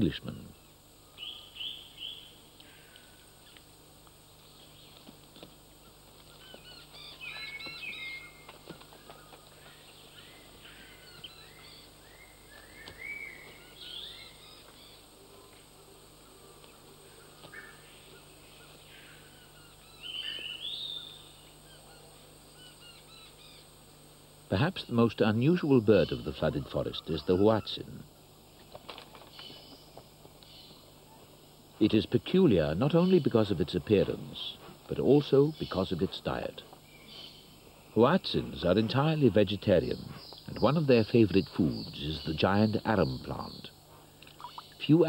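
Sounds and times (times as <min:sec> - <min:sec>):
faint steady hum: 0:00.0 - 0:45.0
high-pitched chirping animal calls: 0:44.4 - 0:44.8.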